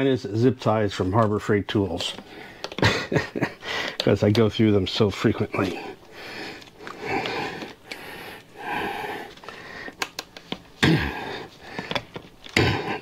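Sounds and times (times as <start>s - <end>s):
person breathing hard: 2.2s - 2.9s, 3.6s - 4.0s, 5.6s - 10.1s, 10.8s - 13.0s.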